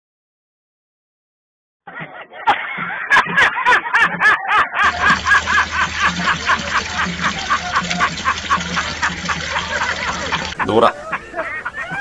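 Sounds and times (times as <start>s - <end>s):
man laughing hard: 1.9s - 12.0s.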